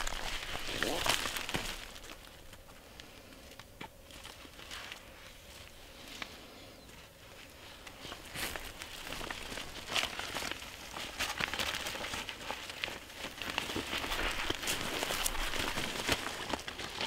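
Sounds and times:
plastic sheet crinkling: 0.0s - 2.6s, 7.6s - 17.0s.

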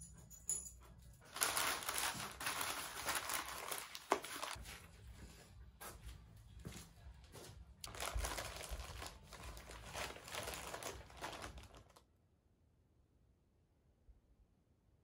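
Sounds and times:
paper and plastic crinkling: 1.3s - 4.9s, 7.8s - 12.0s.

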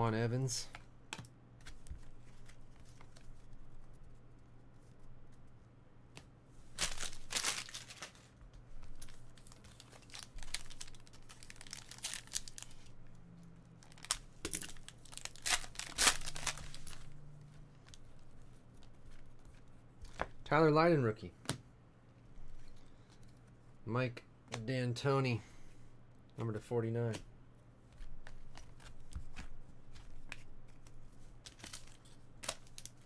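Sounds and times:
plastic wrapper tearing: 6.8s - 8.3s, 9.0s - 12.8s, 13.8s - 17.2s
plastic wrapper crinkling: 6.8s - 13.0s, 13.8s - 17.2s, 31.4s - 33.0s.

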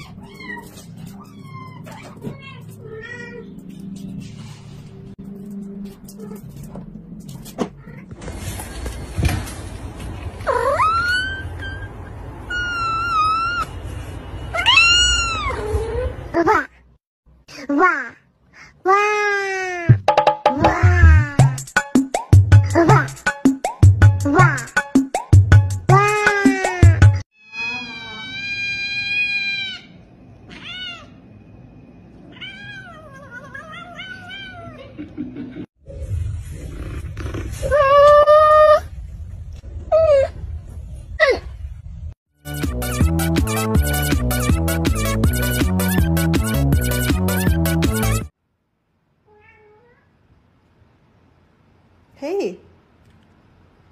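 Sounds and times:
cat meowing: 14.6s - 16.1s, 27.4s - 31.2s, 32.2s - 34.8s.

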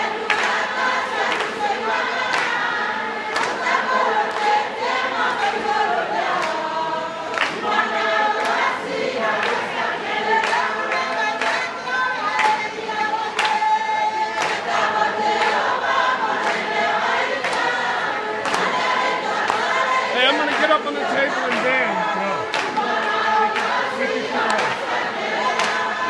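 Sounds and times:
women singing in unison: 0.0s - 26.0s
hand claps in time: 0.2s - 2.6s, 3.3s - 4.6s, 6.3s - 6.6s, 7.3s - 7.7s, 9.4s - 9.7s, 10.4s - 12.7s, 13.3s - 13.8s, 14.4s - 14.7s, 16.4s - 16.7s, 17.4s - 17.8s, 18.4s - 19.8s, 22.4s - 22.9s, 23.5s - 25.9s.

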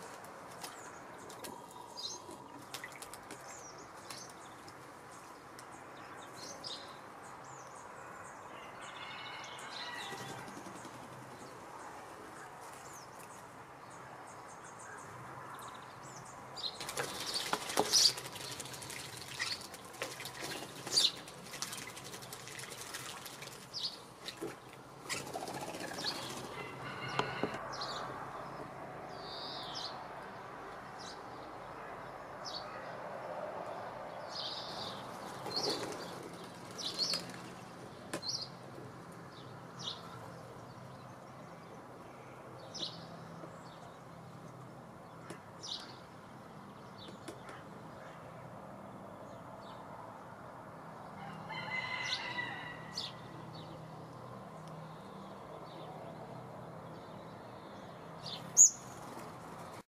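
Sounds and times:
birds splashing and fluttering: 0.0s - 5.4s, 9.2s - 11.6s, 16.6s - 27.5s, 34.8s - 38.4s, 58.3s - 59.8s.

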